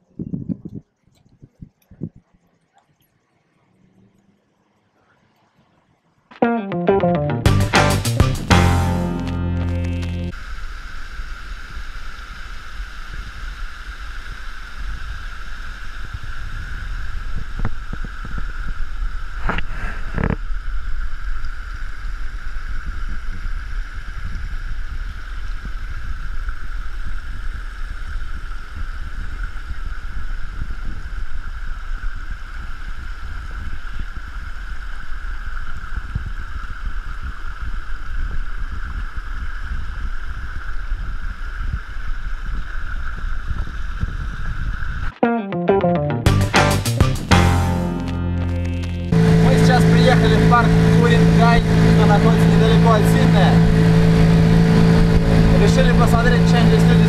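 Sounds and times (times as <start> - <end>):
wind rumbling on microphone: 0.0 - 2.4, 14.8 - 45.1
cicadas droning: 10.4 - 19.4.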